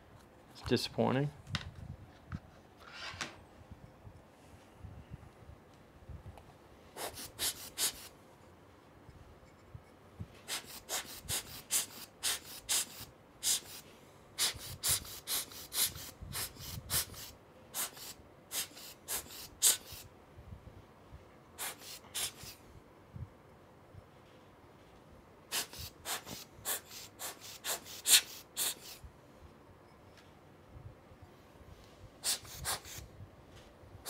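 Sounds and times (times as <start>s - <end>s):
rubber air blower puffing: 6.9s - 8.2s, 10.4s - 20.1s, 21.6s - 22.6s, 25.5s - 29.0s, 32.2s - 33.1s.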